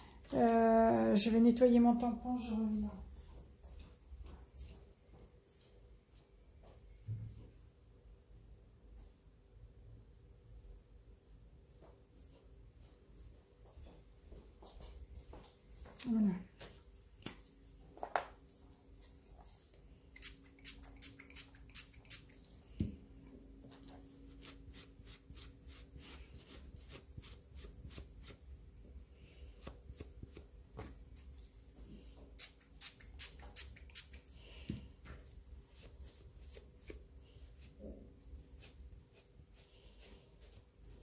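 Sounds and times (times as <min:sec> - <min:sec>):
low steady hum: 0:14.9 - 0:41.0.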